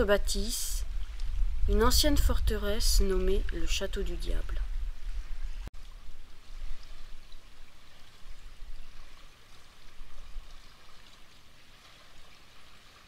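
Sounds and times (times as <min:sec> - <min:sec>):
river water rushing: 0:05.2 - 0:13.0.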